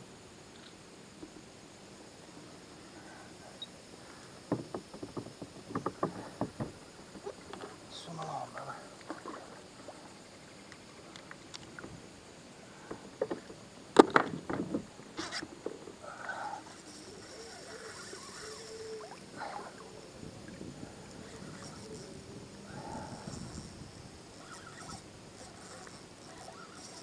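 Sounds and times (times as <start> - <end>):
fishing gear knocking on plastic kayak: 4.5 - 7.3.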